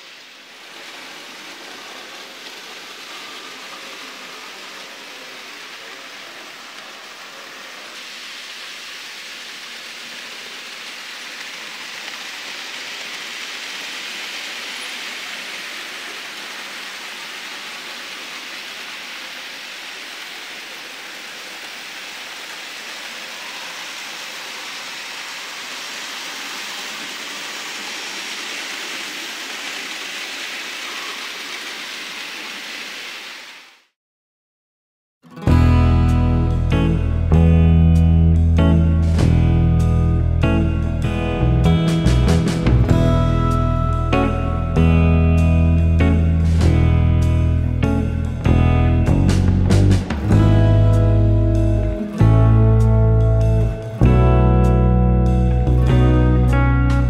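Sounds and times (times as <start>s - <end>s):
model train wheels and motors hissing: 0.0s - 33.6s.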